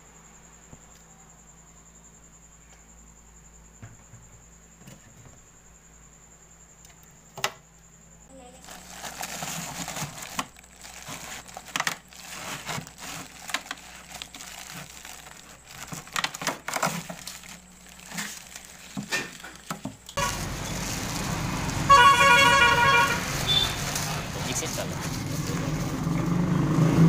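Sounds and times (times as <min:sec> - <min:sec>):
plastic bags crinkling: 0:08.5 - 0:21.5, 0:22.5 - 0:25.9
vehicle horn honking: 0:20.2 - 0:24.9
street noise: 0:20.2 - 0:27.0.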